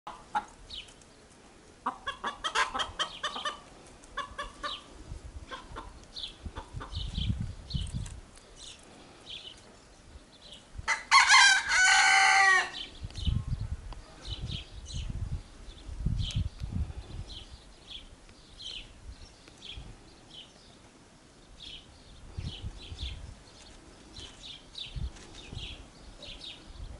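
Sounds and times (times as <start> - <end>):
chicken clucking: 1.8 - 4.9, 5.5 - 6.0
rooster crowing: 10.9 - 12.8.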